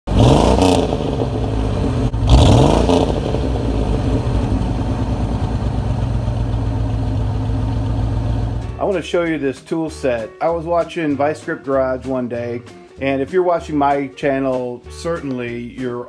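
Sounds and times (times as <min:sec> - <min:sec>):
engine revving and idling: 0:00.0 - 0:08.8.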